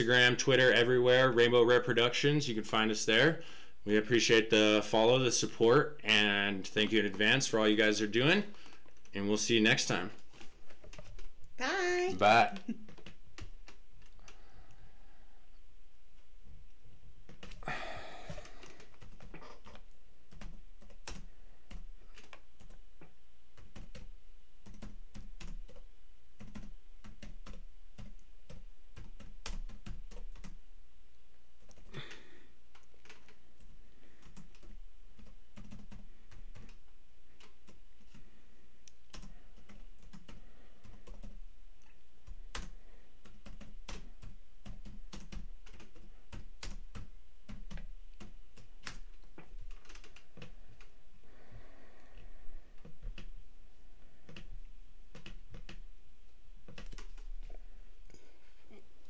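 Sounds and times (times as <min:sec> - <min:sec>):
computer keyboard typing: 0:08.2 - 0:11.4, 0:12.6 - 0:14.4, 0:17.3 - 0:17.7, 0:18.3 - 0:30.6, 0:31.6 - 0:36.8, 0:37.4 - 0:38.3, 0:39.1 - 0:41.4, 0:42.2 - 0:50.9, 0:52.8 - 0:53.3, 0:54.2 - 0:54.5, 0:55.1 - 0:55.8, 0:56.7 - 0:57.3.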